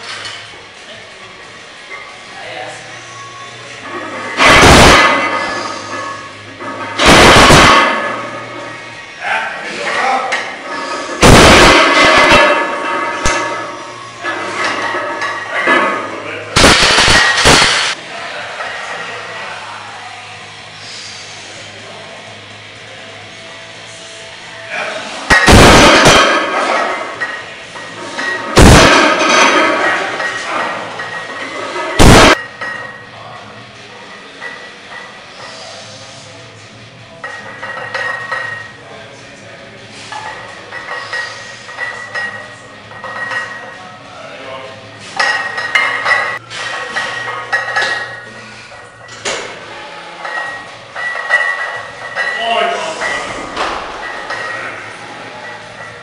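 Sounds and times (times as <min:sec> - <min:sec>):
barbell plates clanking: 0:09.8 - 0:16.2
iron weights clanging: 0:11.5 - 0:18.0, 0:50.2 - 0:56.0.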